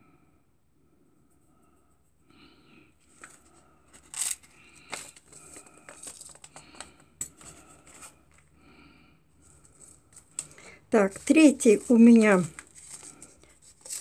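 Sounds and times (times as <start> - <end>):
paper seed packets rustling: 3.0 - 8.4, 9.4 - 14.0.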